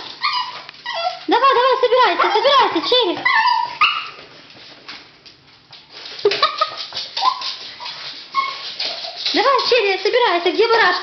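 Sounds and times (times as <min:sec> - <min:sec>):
dog whining: 0:00.0 - 0:01.4, 0:02.0 - 0:04.2, 0:07.2 - 0:09.2
clicks and scuffles of movement: 0:04.1 - 0:11.0.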